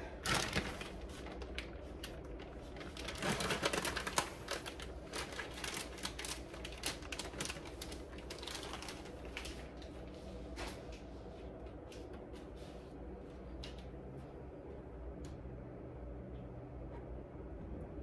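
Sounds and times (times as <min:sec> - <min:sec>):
plastic bag crinkling: 0:00.2 - 0:10.0.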